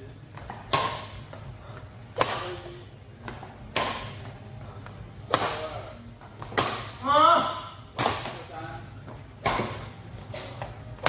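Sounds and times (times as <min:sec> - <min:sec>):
badminton rackets hitting shuttlecock: 0:00.4 - 0:01.4, 0:02.1 - 0:04.4, 0:05.2 - 0:07.3, 0:07.9 - 0:08.5, 0:09.4 - 0:11.0.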